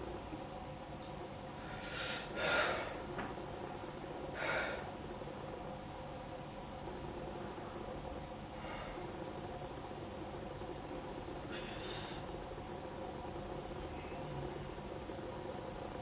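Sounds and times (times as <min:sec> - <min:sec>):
man breathing heavily: 0:01.6 - 0:03.0, 0:04.3 - 0:05.0, 0:08.5 - 0:09.2.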